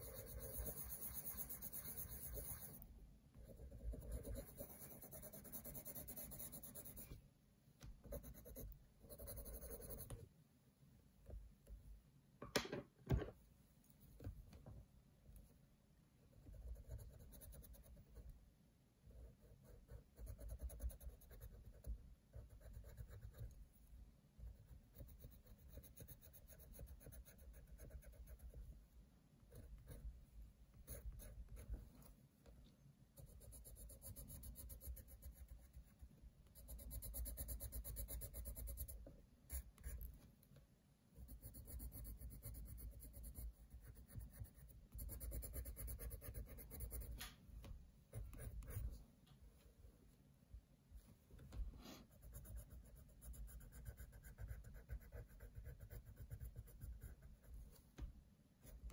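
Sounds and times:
coloured pencil scratching on paper: 0.0s - 7.2s, 8.0s - 10.2s, 16.4s - 18.3s, 19.1s - 23.6s, 24.4s - 28.7s, 29.4s - 30.1s, 30.8s - 31.8s, 33.2s - 40.1s, 41.2s - 47.2s, 48.1s - 49.0s, 51.8s - 57.7s.

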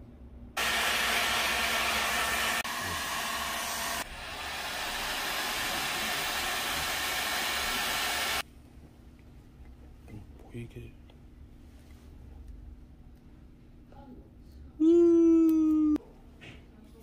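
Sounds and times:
heat gun blowing: 0.6s - 8.4s.

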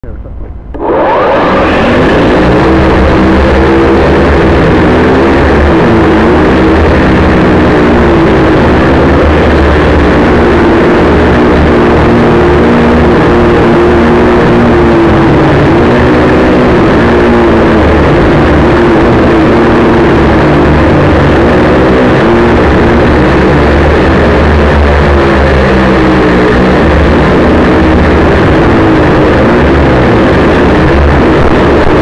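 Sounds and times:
quadcopter motors buzzing: 0.7s - 32.0s.

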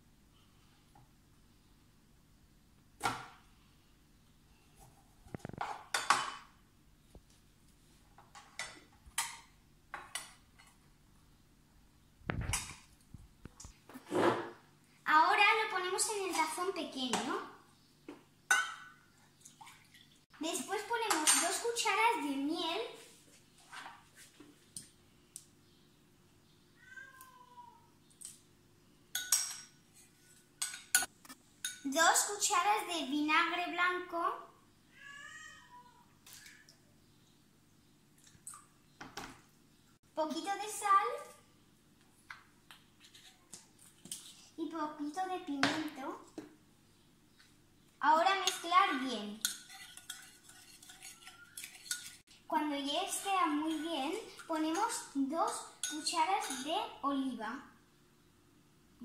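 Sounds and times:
metal spoon clinking on ceramic bowl: 18.5s - 19.0s, 29.1s - 29.8s, 49.4s - 52.2s, 55.8s - 56.7s
short meow-like cry: 35.0s - 36.0s.

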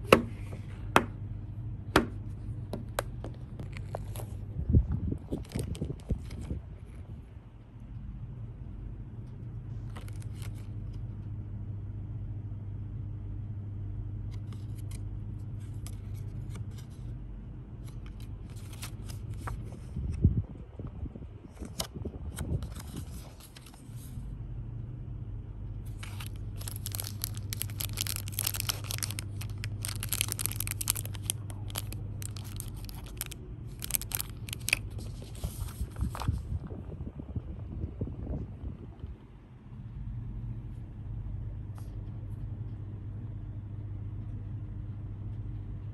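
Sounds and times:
steady low hum: 0.0s - 45.9s
paper cards rustling: 2.8s - 4.4s, 5.3s - 7.0s, 9.8s - 11.0s, 14.4s - 15.0s, 15.6s - 17.1s, 17.8s - 20.1s, 21.5s - 24.2s, 25.9s - 36.5s
plastic bag crinkling: 3.4s - 4.4s, 5.2s - 6.6s, 9.8s - 10.7s, 25.9s - 36.4s.

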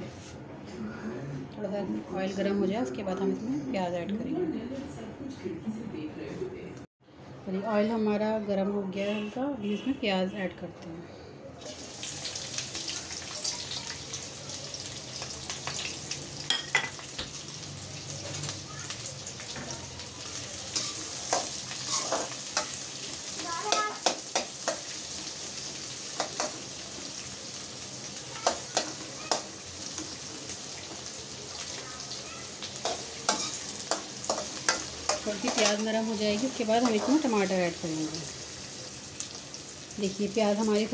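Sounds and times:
onions sizzling in oil: 11.6s - 40.9s
metal spoon scraping a pan: 20.7s - 22.9s, 32.8s - 36.0s, 36.6s - 37.5s.

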